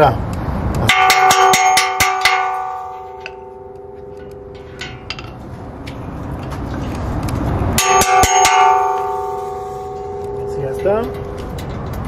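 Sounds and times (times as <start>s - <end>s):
metal truss ringing: 0.8s - 6.0s, 7.7s - 12.0s.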